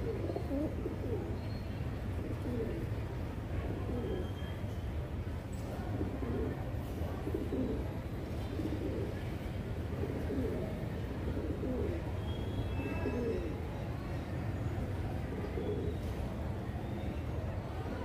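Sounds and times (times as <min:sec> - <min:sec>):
pigeons cooing: 0:00.0 - 0:01.4, 0:02.1 - 0:02.9, 0:06.0 - 0:09.3, 0:09.9 - 0:12.1.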